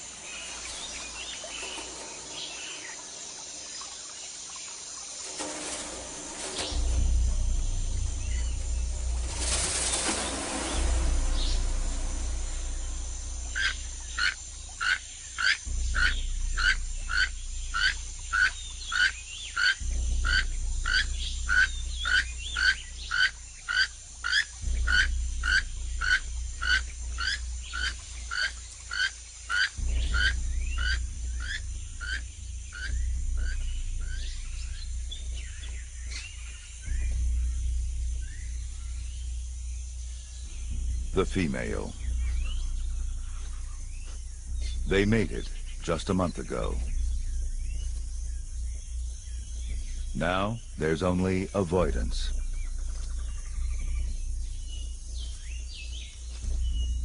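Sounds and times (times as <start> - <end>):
low rumble: 0.0 - 57.0
frog calling: 13.5 - 57.0.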